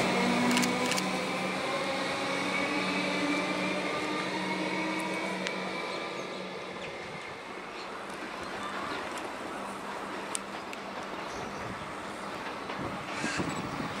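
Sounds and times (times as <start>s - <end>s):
electric train pulling away: 0.0s - 7.7s.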